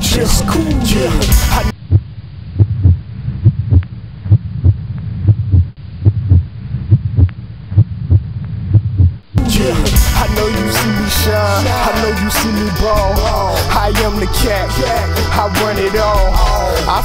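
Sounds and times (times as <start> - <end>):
low hum: 0.0 - 16.7
muffled bass thumps: 0.8 - 10.6.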